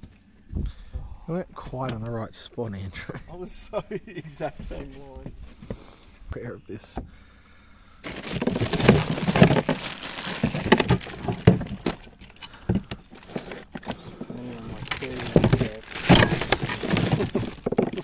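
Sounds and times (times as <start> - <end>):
plastic bags crinkling: 8.0 - 18.0
cooler contents knocking: 8.1 - 13.0, 13.8 - 18.0.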